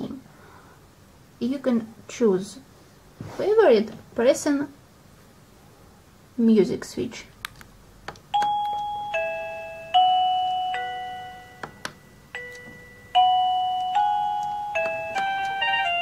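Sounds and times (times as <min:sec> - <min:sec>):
doorbell electronic chime tones: 0:08.4 - 0:16.0.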